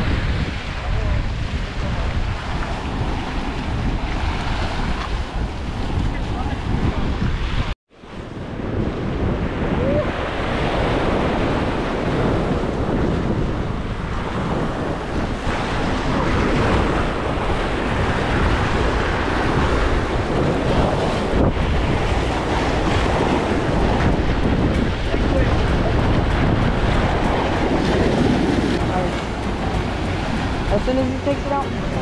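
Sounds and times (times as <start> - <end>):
wind buffeting microphone: 0.0 - 32.0
sea waves washing against rocks: 8.7 - 32.0.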